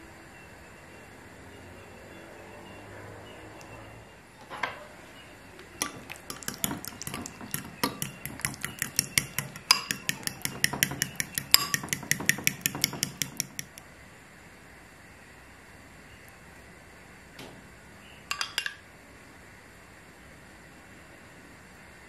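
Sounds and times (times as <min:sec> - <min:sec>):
metal spoon clinking glass bowl: 0:05.8 - 0:13.8, 0:18.3 - 0:18.8.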